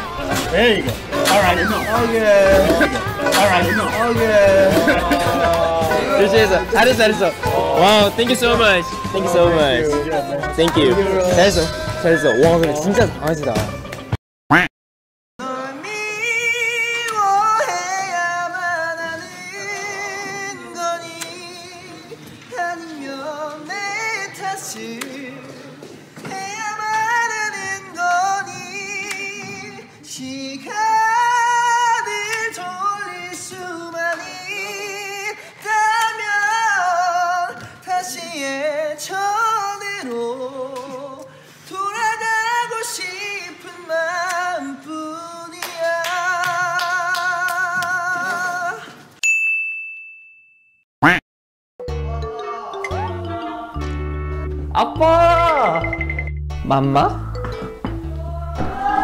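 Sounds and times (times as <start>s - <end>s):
person singing with vibrato: 0.0s - 8.2s, 15.4s - 49.1s, 51.8s - 55.9s.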